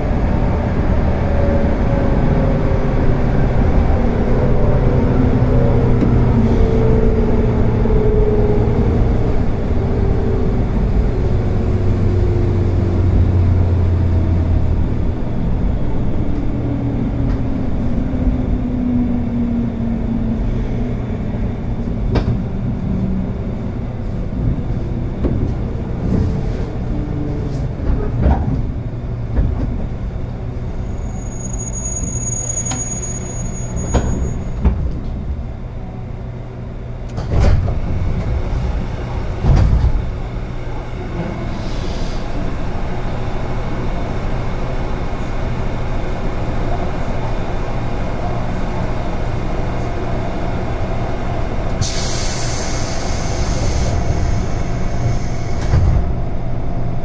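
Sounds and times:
train wheels rumbling: 0:00.0 - 0:57.0
high brake squeal: 0:30.8 - 0:34.6.

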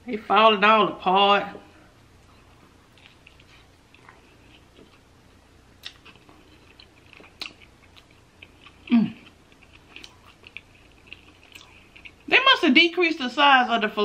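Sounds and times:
person chewing food: 0:02.1 - 0:12.3
person humming: 0:08.9 - 0:09.2.

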